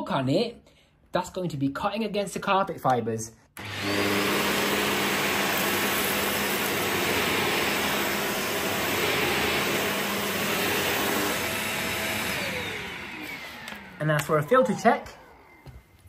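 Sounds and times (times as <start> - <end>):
vacuum cleaner motor whine: 3.6 - 16.0.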